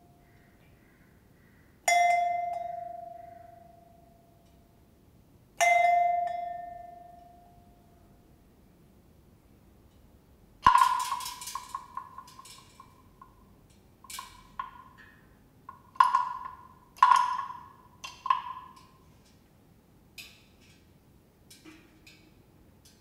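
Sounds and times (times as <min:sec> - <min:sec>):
small bells ringing: 0:01.9 - 0:04.1, 0:05.6 - 0:07.7.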